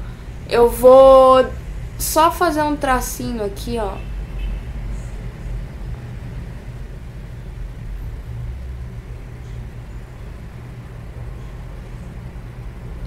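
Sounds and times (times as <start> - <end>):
low rumble of road traffic: 0.0 - 13.0.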